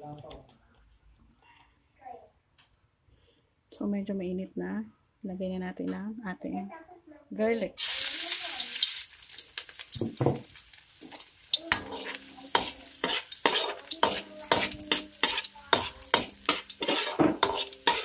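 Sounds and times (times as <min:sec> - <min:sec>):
light sizzle: 0:07.8 - 0:18.0
metal ladle scraping wok: 0:08.7 - 0:18.0.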